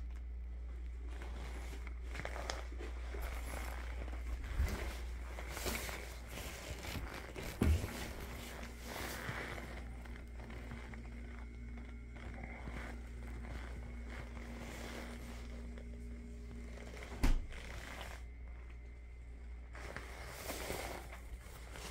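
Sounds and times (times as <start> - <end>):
faint fridge hum: 0.0 - 21.9
low room hum: 0.0 - 21.9
fridge door pulled open: 17.2 - 17.6.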